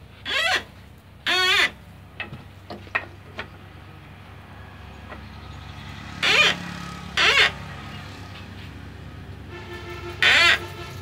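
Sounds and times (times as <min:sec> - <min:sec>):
metal squeaks of band saw handle: 0:00.2 - 0:01.8, 0:06.2 - 0:07.7, 0:10.2 - 0:11.0.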